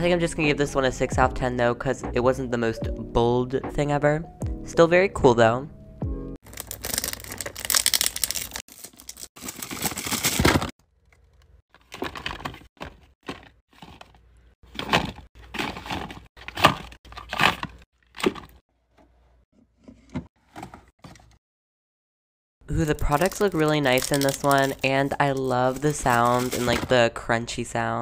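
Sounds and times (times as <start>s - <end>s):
paper wrapping crinkling: 6.4s - 18.6s, 22.9s - 26.9s.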